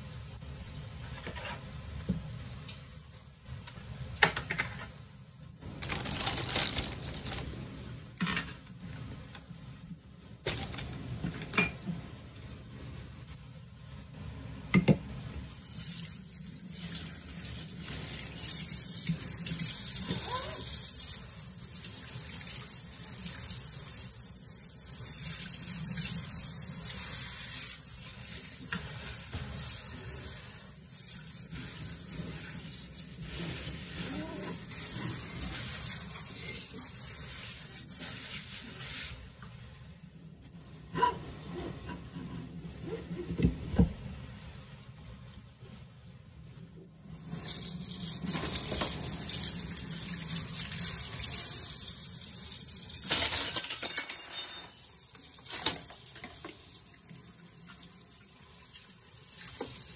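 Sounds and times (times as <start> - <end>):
water splashing on dishes: 47.2 - 59.9.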